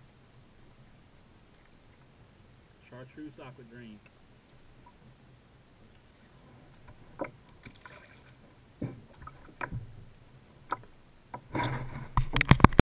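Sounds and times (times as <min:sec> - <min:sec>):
knocks and bumps in a kayak: 0:06.4 - 0:12.8.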